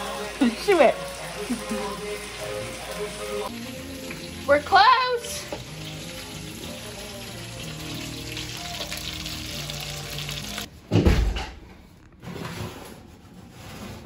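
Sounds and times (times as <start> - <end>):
background music: 0.0 - 10.7.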